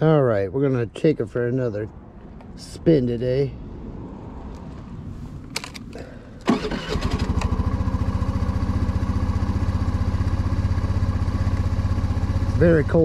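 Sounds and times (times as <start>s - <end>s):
engine starting and idling: 6.0s - 10.1s.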